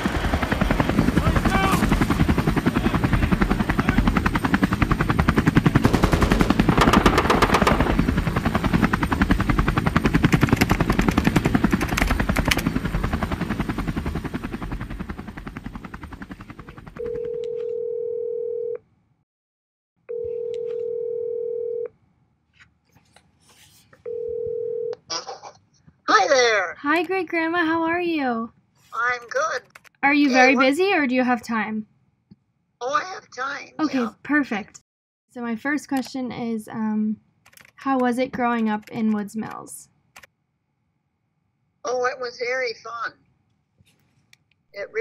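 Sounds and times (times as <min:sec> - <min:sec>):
telephone ringback tone: 0:17.0 - 0:18.8, 0:20.1 - 0:21.9, 0:24.0 - 0:25.0.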